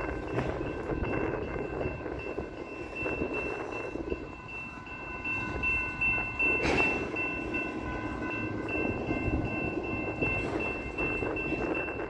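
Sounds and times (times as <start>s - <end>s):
train wheels rumbling and clattering: 0.0s - 12.0s.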